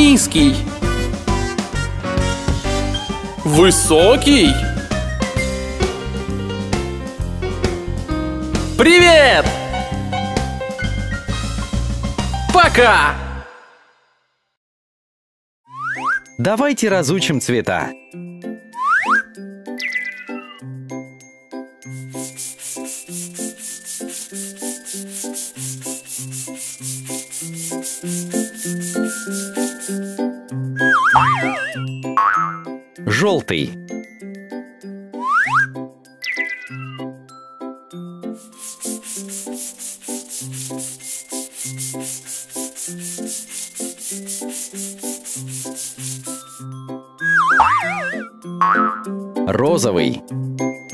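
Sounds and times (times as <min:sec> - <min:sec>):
children's music with plucked notes: 0:18.2 - 0:21.8, 0:29.0 - 0:38.6, 0:46.2 - 0:50.9
cartoon brush swishes: 0:21.9 - 0:31.9, 0:38.3 - 0:48.3.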